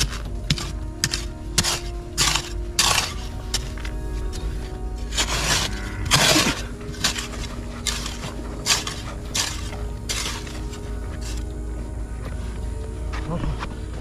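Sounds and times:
metal hoe chopping into soil: 0.0 - 3.9, 5.0 - 11.5.

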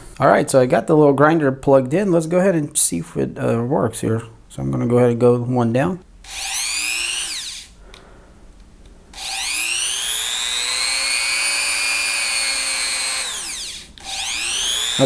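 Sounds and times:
rotary tool motor whine: 6.3 - 7.8, 9.1 - 15.0.

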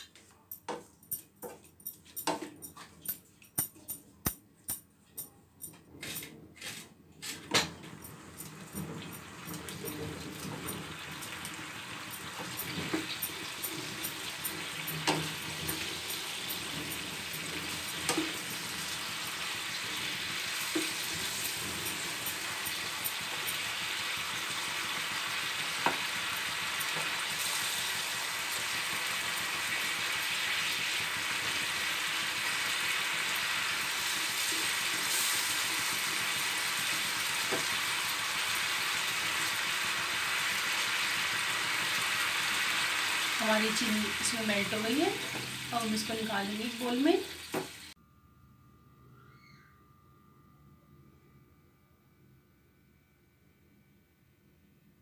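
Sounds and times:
spatula tapping: 0.1 - 5.7
spatula scraping pan: 6.0 - 7.6
sugar sizzling and bubbling in pan: 8.0 - 48.0.

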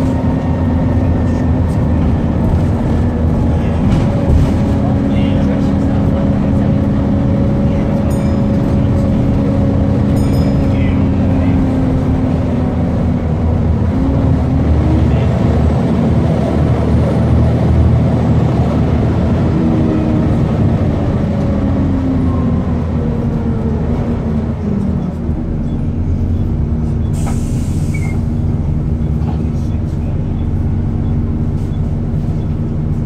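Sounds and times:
bus diesel engine drone: 0.0 - 33.0
air brake hiss: 27.1 - 28.3.

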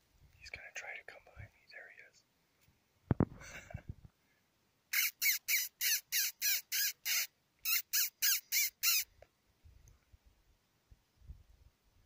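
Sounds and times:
man making bird-like squawks: 5.0 - 9.1.

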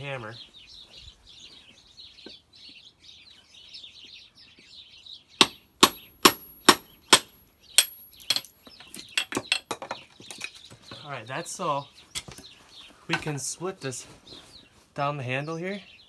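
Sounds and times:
hammer striking hatchet metal: 5.4 - 8.5.

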